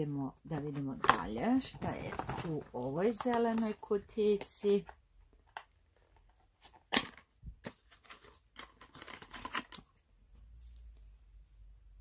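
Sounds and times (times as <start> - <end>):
cardboard rustling: 0.7 - 3.9, 5.4 - 10.0.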